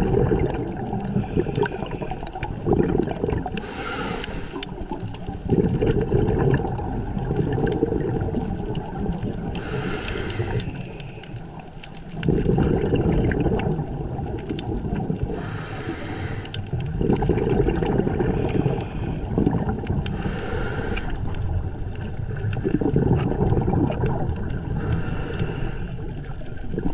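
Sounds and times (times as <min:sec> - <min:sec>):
exhaled bubbles rushing: 0:00.0 - 0:03.8, 0:04.5 - 0:26.9
regulator inhale hiss: 0:03.6 - 0:04.8, 0:09.6 - 0:11.4, 0:15.3 - 0:16.6, 0:20.1 - 0:21.3, 0:24.7 - 0:26.1.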